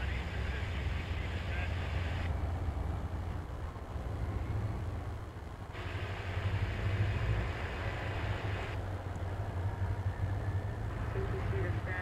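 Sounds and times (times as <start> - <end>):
diesel locomotive rumbling: 0.0 - 12.0
high hiss: 5.7 - 8.8.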